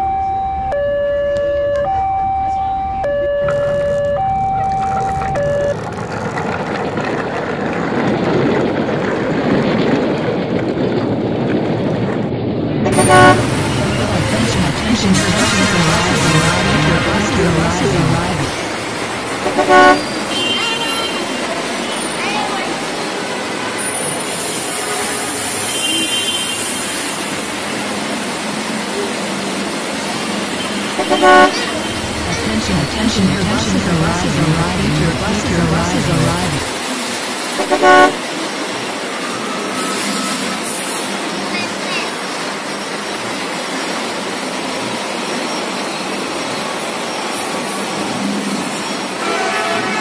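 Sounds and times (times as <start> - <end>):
train passing: 5.8 - 20.4, 26.7 - 49.2
vehicle running noise: 12.6 - 20.3, 30.8 - 36.8, 37.5 - 38.2
train horn chord: 12.9 - 14.2, 19.4 - 20.0, 31.0 - 32.0, 37.6 - 38.2.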